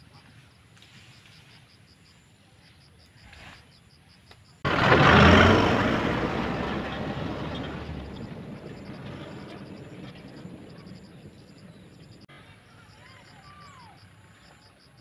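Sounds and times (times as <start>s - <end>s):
dump truck driving past: 4.6s - 12.3s.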